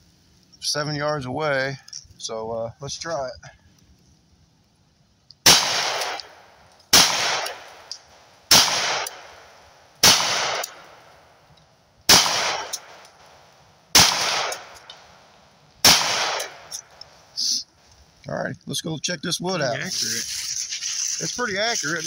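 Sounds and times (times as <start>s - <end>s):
carbine gunshots with ringing echo: 5.4s - 11.3s, 12.1s - 17.0s.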